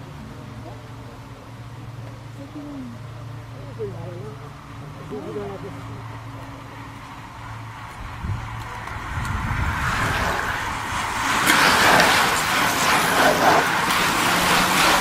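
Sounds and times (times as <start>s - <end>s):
bicycle tyres hissing on tarmac: 6.7s - 15.0s.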